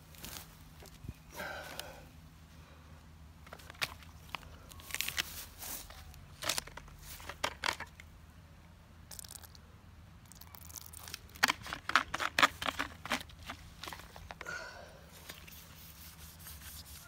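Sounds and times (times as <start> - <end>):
crinkling plastic and rubber clicks: 3.4 - 8.1, 10.2 - 14.5.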